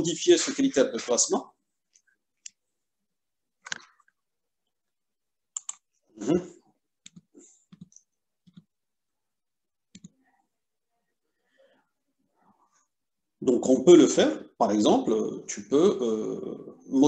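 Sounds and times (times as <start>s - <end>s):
computer clicks: 5.5s - 5.9s, 7.0s - 8.7s, 9.9s - 10.2s.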